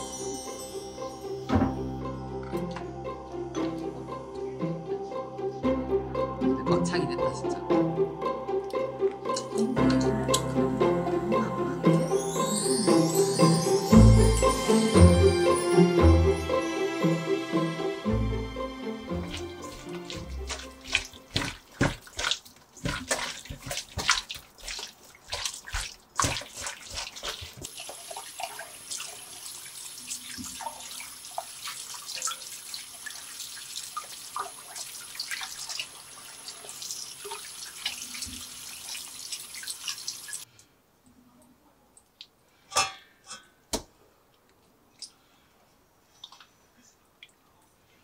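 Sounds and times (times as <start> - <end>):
scrubbing against metal bowl: 19.2 - 27.7.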